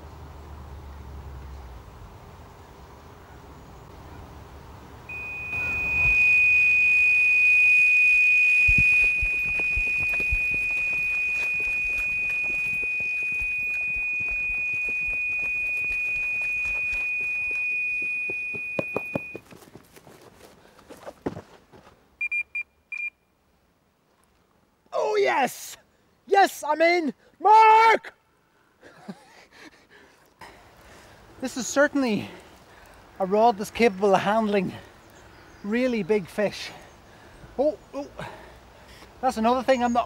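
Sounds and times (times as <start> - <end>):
bite alarm long high tone: 5.1 - 19.4
short beeps: 5.1 - 19.4, 22.2 - 23.2.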